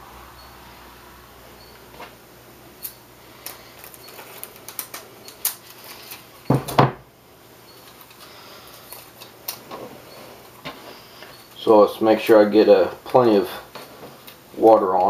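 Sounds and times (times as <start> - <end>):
paper tape crackles and taps: 3.4 - 6.9.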